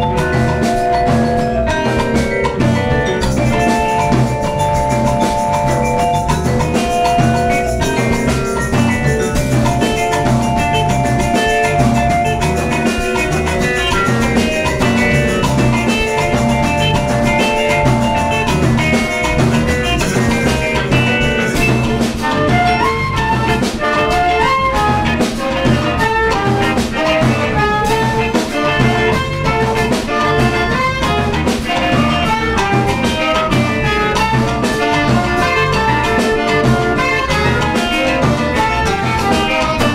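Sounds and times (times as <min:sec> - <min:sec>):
vibraphone ringing: 0:00.0 - 0:23.9
live band instrumental: 0:00.0 - 0:39.9.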